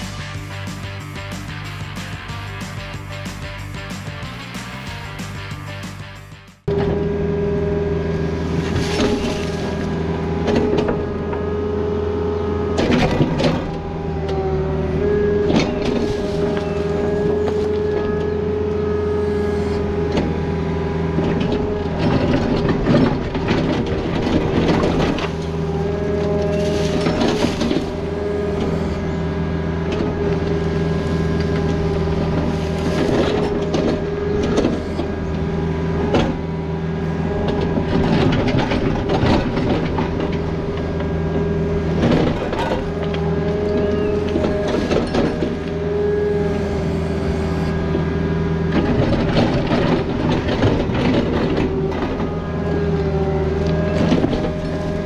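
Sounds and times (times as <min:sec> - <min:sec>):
excavator diesel engine: 0:00.0 - 0:55.0
hydraulic whine: 0:06.6 - 0:55.0
bucket scraping rock: 0:08.5 - 0:10.8, 0:15.4 - 0:18.4, 0:21.4 - 0:29.2, 0:29.9 - 0:35.3.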